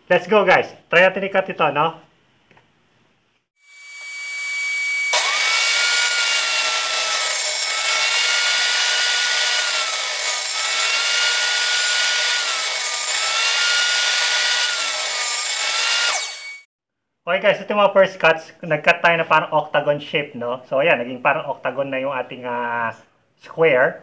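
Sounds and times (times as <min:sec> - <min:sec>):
table saw cutting plywood: 0:03.6 - 0:16.7.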